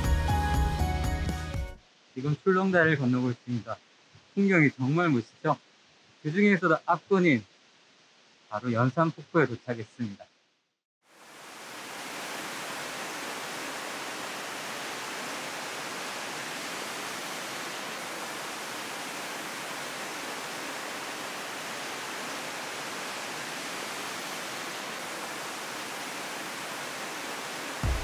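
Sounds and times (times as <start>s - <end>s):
waterfall rushing into a pool: 11.1s - 28.0s.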